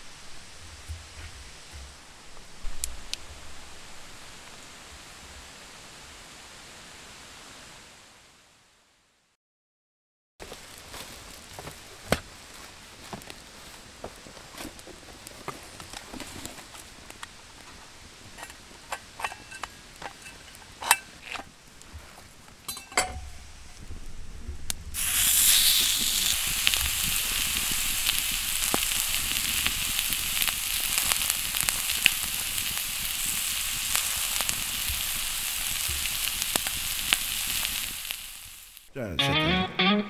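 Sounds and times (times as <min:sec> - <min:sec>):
meat sizzling in a frying pan: 0:24.9 - 0:38.9.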